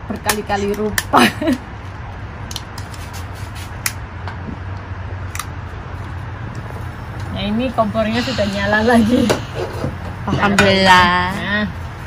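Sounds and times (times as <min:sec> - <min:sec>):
gas burner hissing: 0:05.3 - 0:12.0.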